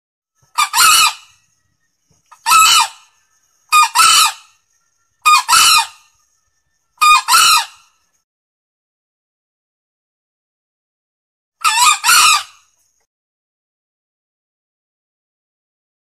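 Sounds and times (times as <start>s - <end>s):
junglefowl crowing: 0.5s - 1.4s, 2.3s - 4.6s, 5.2s - 6.1s, 7.0s - 7.9s, 11.6s - 12.7s.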